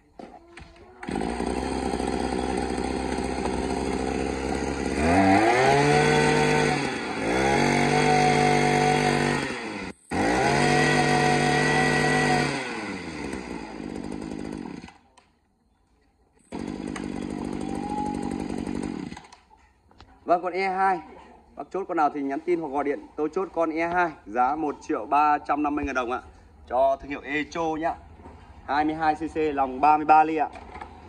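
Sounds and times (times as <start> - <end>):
brush cutter engine idling and revving: 0.2 - 15.2, 16.4 - 19.5.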